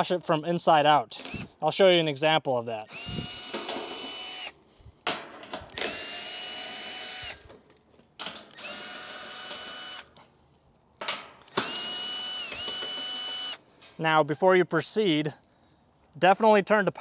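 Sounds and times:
cordless drill whining: 0:01.2 - 0:01.6, 0:02.8 - 0:04.6, 0:05.7 - 0:07.5, 0:08.5 - 0:10.2, 0:11.5 - 0:13.6
small clicks of bit and screws: 0:01.2 - 0:01.6, 0:05.5 - 0:10.8, 0:11.4 - 0:13.9.

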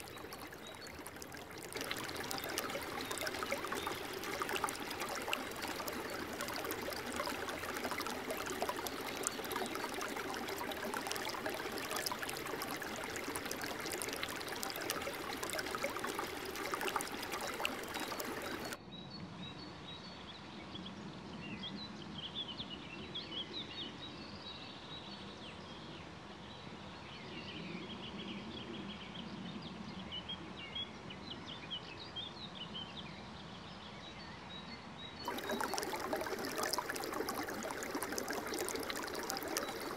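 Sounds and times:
stream rushing over boulders: 0:00.0 - 0:18.8, 0:35.3 - 0:39.9.

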